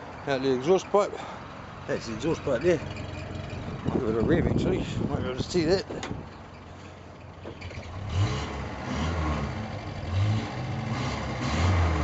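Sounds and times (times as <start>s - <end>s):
car engine revving: 7.6s - 12.0s.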